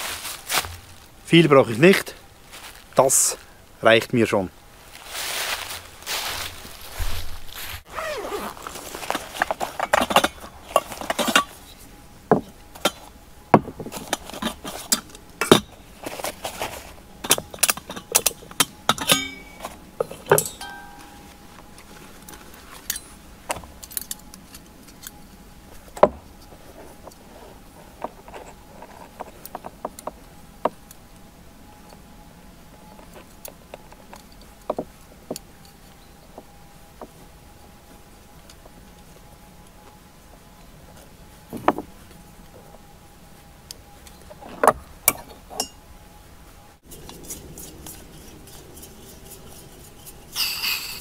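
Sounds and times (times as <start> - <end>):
metal cookware clinking: 18.9 - 21.3.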